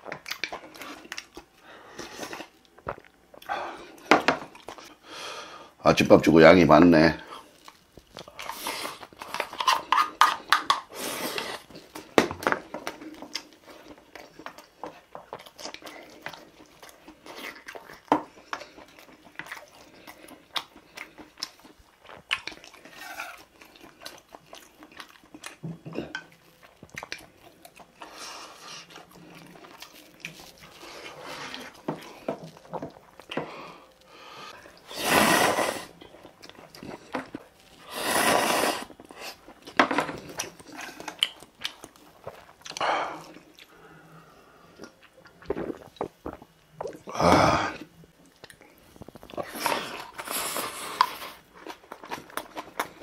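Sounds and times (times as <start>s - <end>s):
chewing and smacking: 0.0s - 5.0s, 7.3s - 34.9s, 35.9s - 37.9s, 38.9s - 43.8s, 48.1s - 53.0s
slurping noodles: 34.8s - 36.0s, 37.8s - 39.5s, 49.2s - 51.5s.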